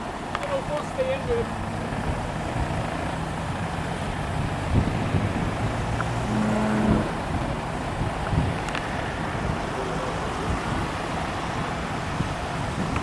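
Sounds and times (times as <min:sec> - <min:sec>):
higher hum: 0:00.0 - 0:08.0
truck engine running: 0:00.0 - 0:13.0.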